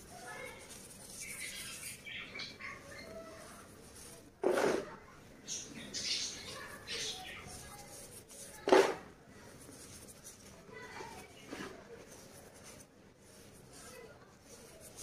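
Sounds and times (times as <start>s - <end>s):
hands crunching chalk powder: 6.5s - 15.0s.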